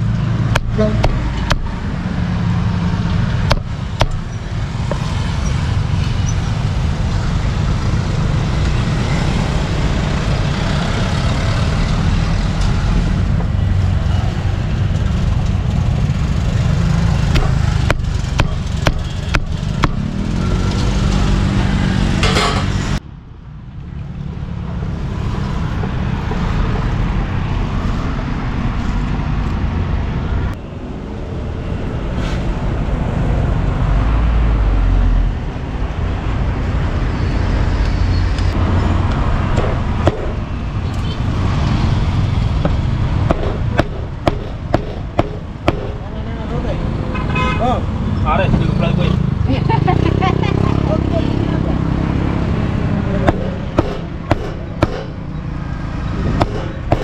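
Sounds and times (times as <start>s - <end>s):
traffic rumble: 0.0s - 57.0s
engine revving: 15.5s - 23.0s, 47.8s - 57.0s
cleaver chopping meat on board: 17.3s - 20.1s, 53.3s - 55.1s, 56.4s - 57.0s.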